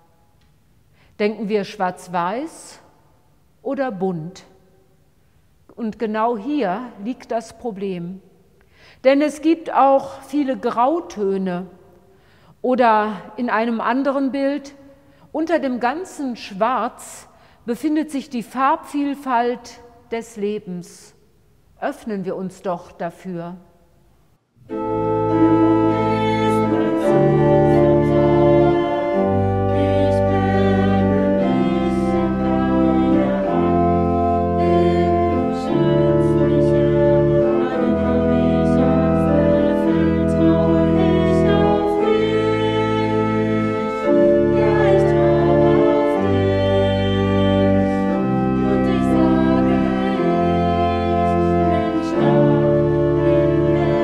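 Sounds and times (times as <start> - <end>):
pipe organ playing chords: 24.6 - 54.0.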